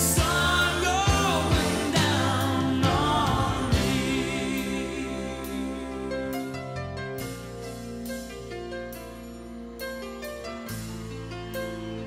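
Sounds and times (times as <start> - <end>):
person singing: 0.0 - 6.6
sustained instrumental chords: 0.0 - 12.0.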